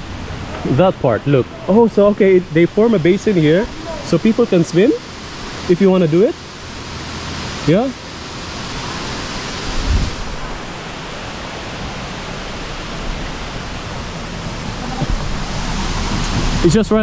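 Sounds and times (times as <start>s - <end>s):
waterfall rushing: 0.0s - 17.0s
low thump: 14.8s - 16.6s.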